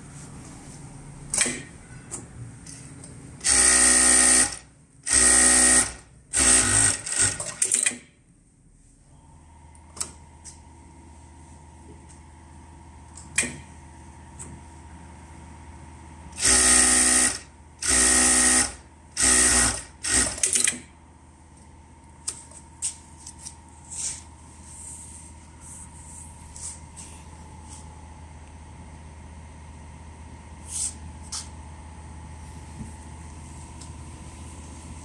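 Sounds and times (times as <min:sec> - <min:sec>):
sewing machine running: 0:03.4 - 0:07.8, 0:16.4 - 0:20.8.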